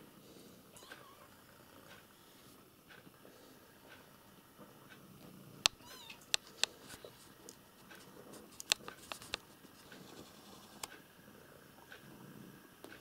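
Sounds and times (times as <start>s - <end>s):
sharp clicks and taps: 8.5s - 9.5s.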